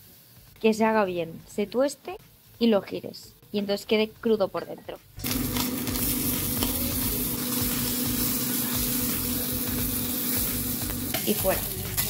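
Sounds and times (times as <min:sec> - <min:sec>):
fish sizzling in a pan: 0:05.2 - 0:12.0.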